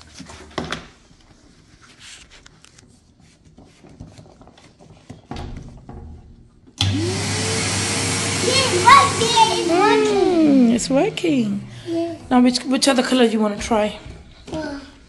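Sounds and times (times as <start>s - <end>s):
toy vacuum cleaner humming: 6.8s - 11.5s.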